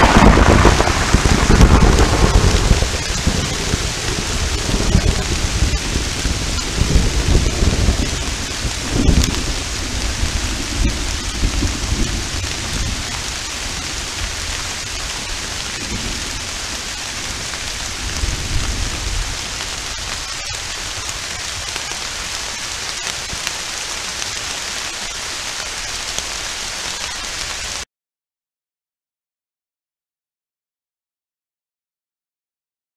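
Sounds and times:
rolling thunder: 0.0s - 20.2s
steady rain: 0.0s - 27.9s.

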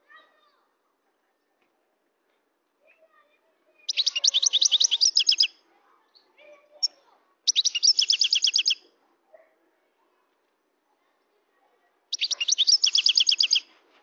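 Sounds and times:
goldfinch trilling: 3.9s - 5.5s, 7.5s - 8.8s, 12.1s - 13.6s.

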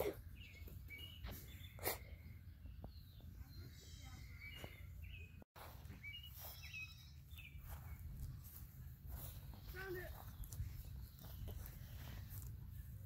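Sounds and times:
small birds chirping: 0.0s - 13.0s
bird trill: 0.2s - 8.2s.

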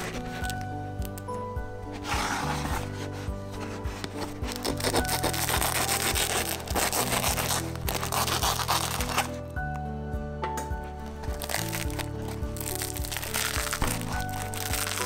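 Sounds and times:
background music: 0.0s - 15.0s
knife sawing through crusty bread: 3.6s - 9.3s.

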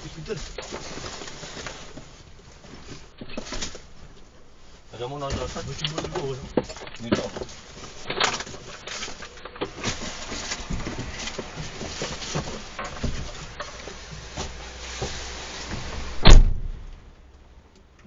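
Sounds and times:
rustling: 0.0s - 17.2s
steady outdoor noise: 0.0s - 18.0s
vehicle door slammed shut: 16.1s - 16.9s.

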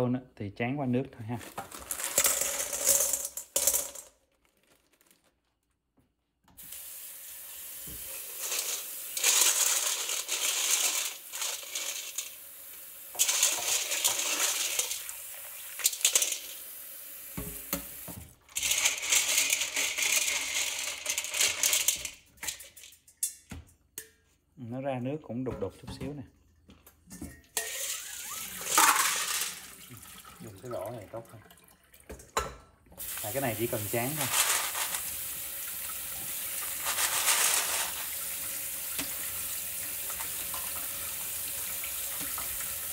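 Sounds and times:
hands stirring wet stones: 1.2s - 5.8s, 7.8s - 16.6s, 18.5s - 24.4s, 27.6s - 31.2s, 33.0s - 40.8s
stones clinking into metal bowl: 1.4s - 4.2s, 8.1s - 12.4s, 13.1s - 15.1s, 15.8s - 16.6s, 18.5s - 24.1s, 27.2s - 29.8s, 33.2s - 35.2s, 36.7s - 38.2s
tap running into bowl: 17.4s - 18.3s.

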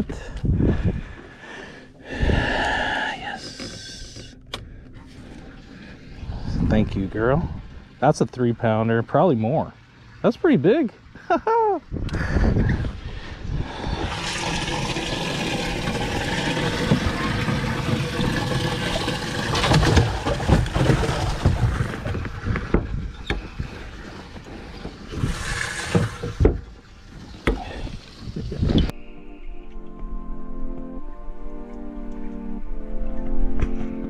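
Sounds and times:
water sloshing and splashing: 3.4s - 10.2s, 13.7s - 28.9s.

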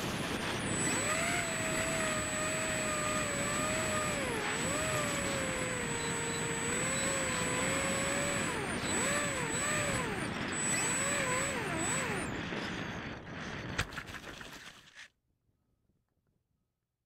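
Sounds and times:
wind rush: 0.0s - 6.7s
electric motor and propeller: 0.0s - 14.6s.

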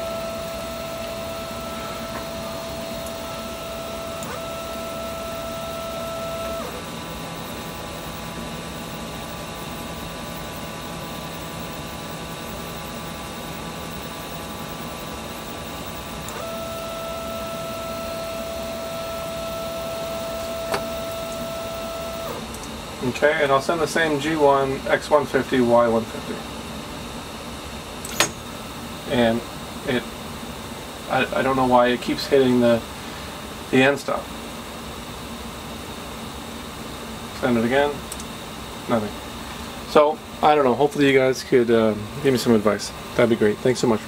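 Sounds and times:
stepper motors whining: 0.0s - 22.7s
sharp click: 28.0s - 28.4s, 38.1s - 38.3s.

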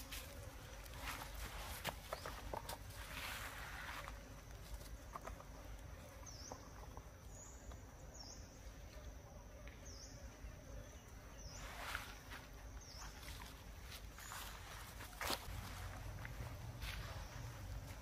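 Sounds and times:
rustling on dry leaves: 0.0s - 4.9s, 11.5s - 18.0s.

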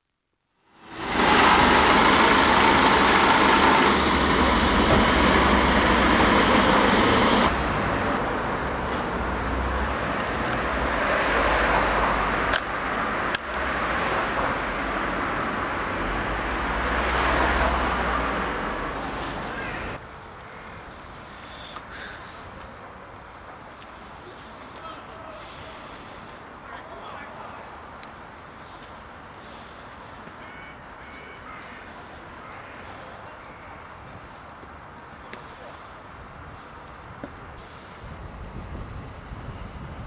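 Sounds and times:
road traffic rumble: 0.6s - 40.0s.

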